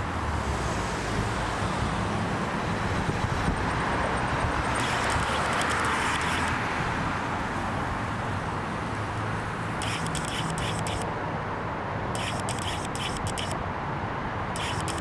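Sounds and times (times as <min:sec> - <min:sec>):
traffic rumble and hiss: 0:00.0 - 0:15.0
faint crackling clicks: 0:14.6 - 0:15.0.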